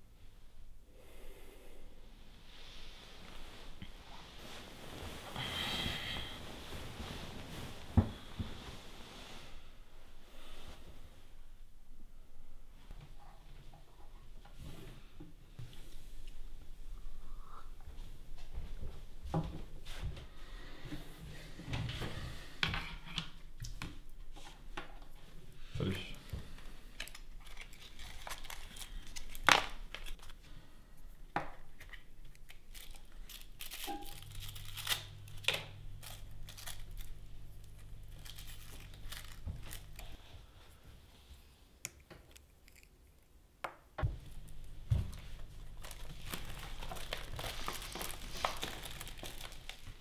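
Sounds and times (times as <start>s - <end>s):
paper crinkling and rustling: 26.4s - 30.4s, 31.7s - 40.3s, 44.1s - 50.0s.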